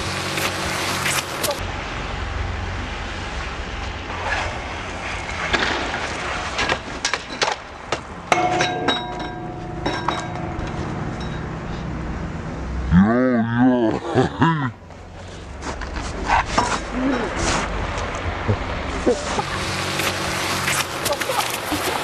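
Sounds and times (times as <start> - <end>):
steady high tone: 8.3 - 13.0
low rumble: 8.6 - 13.8.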